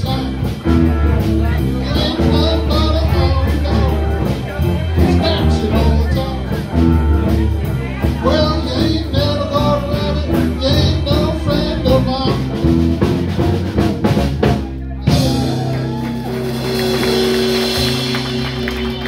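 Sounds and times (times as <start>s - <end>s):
singing: 0.0s - 12.8s
drum beat: 0.0s - 19.0s
rock band playing: 0.0s - 19.0s.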